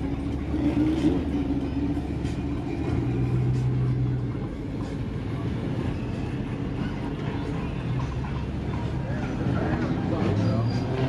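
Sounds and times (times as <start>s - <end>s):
car engines rumbling: 0.0s - 11.0s.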